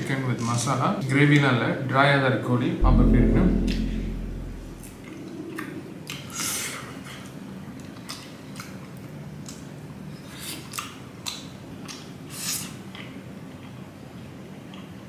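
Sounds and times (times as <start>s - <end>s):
person chewing and lip smacking: 10.6s - 12.1s.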